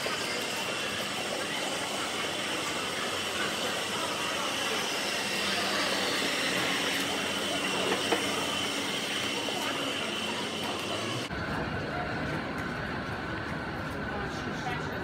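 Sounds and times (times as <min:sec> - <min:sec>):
faint background chatter: 0:00.0 - 0:15.0.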